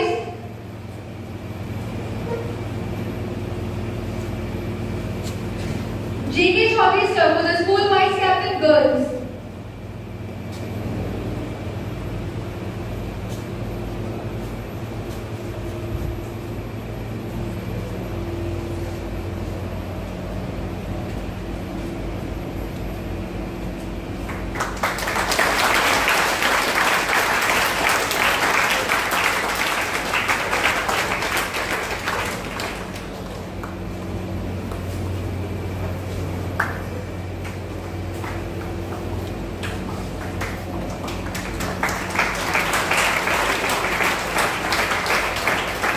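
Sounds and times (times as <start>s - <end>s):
low hum in a hall: 0.0s - 45.9s
audience applauding: 24.2s - 34.2s, 36.6s - 36.9s, 38.1s - 45.9s.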